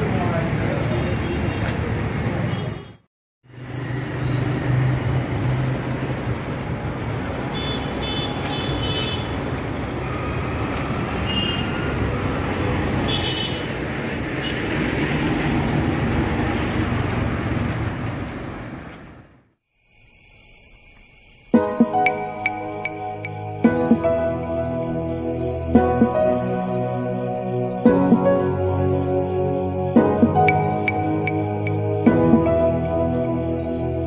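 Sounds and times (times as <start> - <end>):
traffic engines and road noise: 0.0 - 19.6, 22.1 - 34.0
vehicle horn toots: 7.5 - 9.4, 11.3 - 11.9, 13.1 - 13.7.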